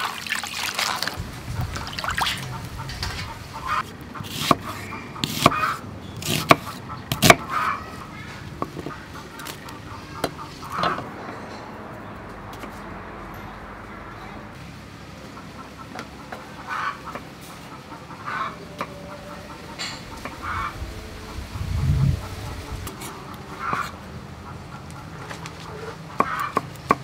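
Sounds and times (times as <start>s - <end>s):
knife chopping on wooden block: 4.2s - 7.5s.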